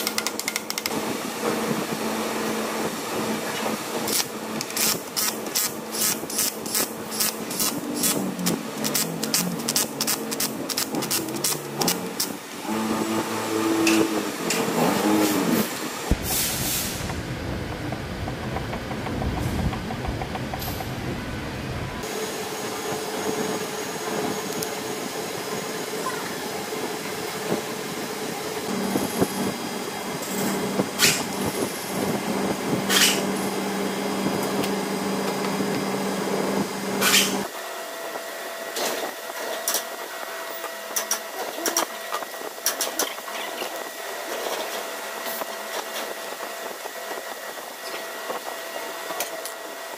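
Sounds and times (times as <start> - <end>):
power tool motor running: 4.1 - 16.2.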